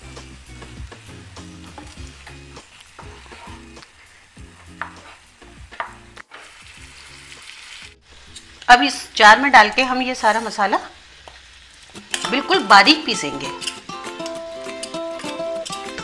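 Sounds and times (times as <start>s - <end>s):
fish sizzling in a pan: 0.0s - 16.0s
spatula scraping a pan: 1.6s - 8.6s.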